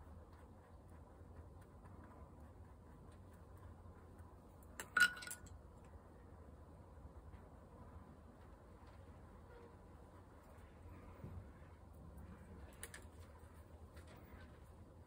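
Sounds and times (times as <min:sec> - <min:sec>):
small ringing clink: 0:04.8 - 0:05.6.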